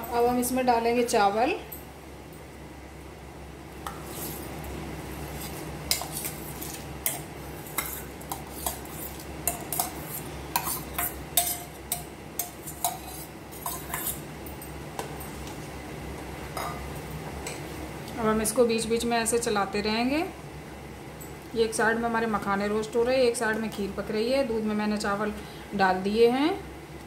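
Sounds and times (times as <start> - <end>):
steady low hum: 0.0 - 27.0
utensils clinking on steel pot: 5.9 - 15.5.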